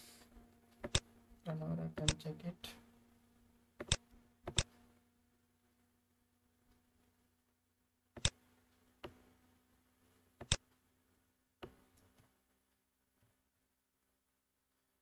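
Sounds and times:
faint steady hum: 0.0s - 15.0s
computer mouse clicking: 0.8s - 1.1s, 3.8s - 4.7s.

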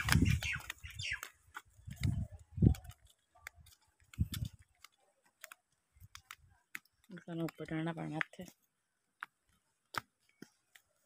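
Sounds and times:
footsteps on leaf litter: 0.0s - 4.8s
dry leaves and twigs crackling: 0.0s - 11.0s.

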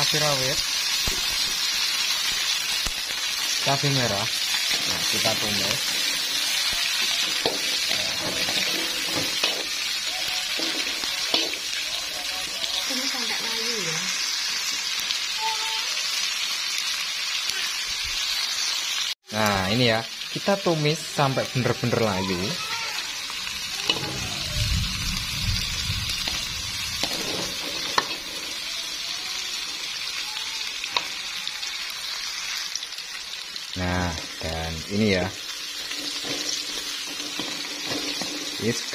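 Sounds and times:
food sizzling in hot oil: 0.0s - 38.9s
metal spatula scraping wok: 2.9s - 14.2s, 22.0s - 24.5s, 26.1s - 30.2s, 35.1s - 38.9s.

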